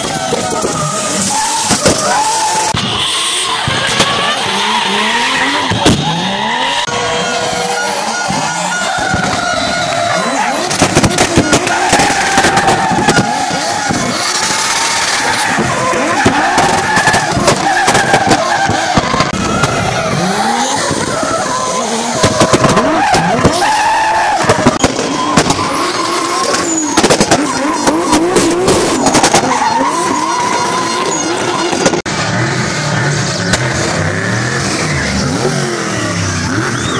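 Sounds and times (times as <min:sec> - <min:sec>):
tyres screeching: 0:00.0 - 0:32.0, 0:33.0 - 0:36.9
car engine revving: 0:00.0 - 0:36.9
sharp cracks: 0:09.0 - 0:21.0, 0:24.3 - 0:29.6.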